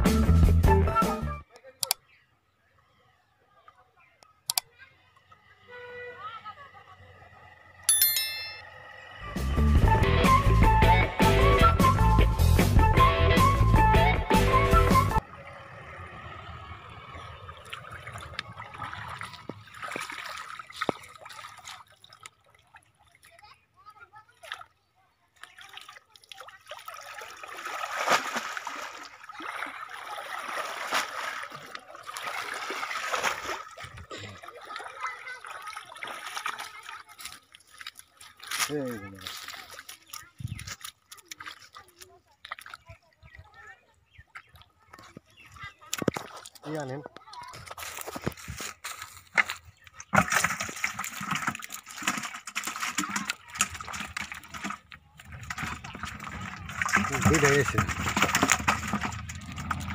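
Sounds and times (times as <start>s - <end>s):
water dripping: 17.3s - 23.5s, 25.4s - 47.3s, 49.4s - 59.9s
water splashing off a net: 17.7s - 22.8s, 25.4s - 40.2s, 50.0s - 59.9s.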